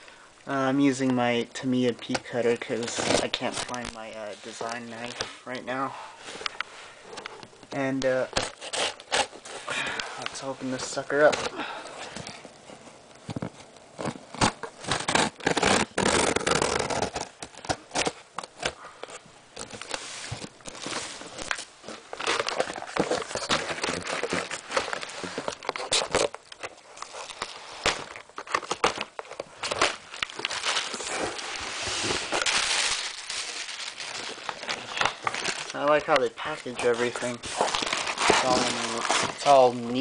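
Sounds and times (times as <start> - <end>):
packing material crinkling: 0.8 - 7.2, 7.8 - 40.0
cardboard box being opened: 13.3 - 18.8, 36.5 - 40.0.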